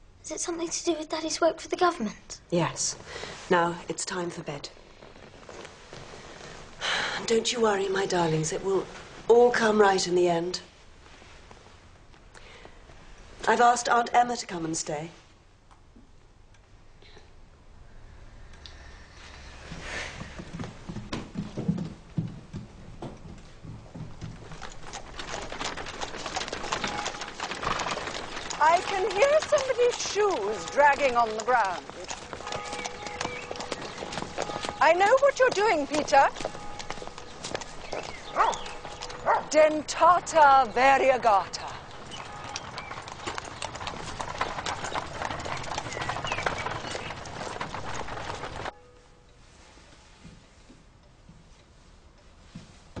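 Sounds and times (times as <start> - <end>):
hooves clip-clopping: 2.6 - 10.6, 18.5 - 49.1
people's footsteps: 2.6 - 13.8, 19.1 - 53.0
carriage clatter: 41.5 - 49.0.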